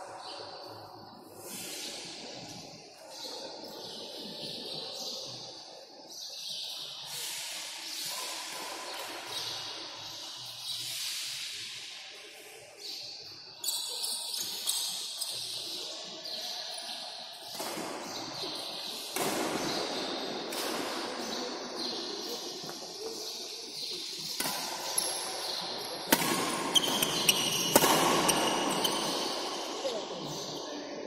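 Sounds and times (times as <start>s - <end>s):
shoe squeak on court floor: 13.6s - 15.7s, 22.6s - 30.0s
racket striking shuttlecock: 17.5s - 21.4s, 24.3s - 29.4s.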